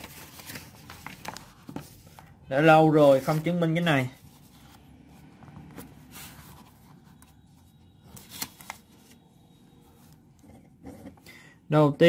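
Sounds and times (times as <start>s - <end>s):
paper rustling on a book page: 0.0s - 2.3s, 3.0s - 4.8s, 5.4s - 9.2s.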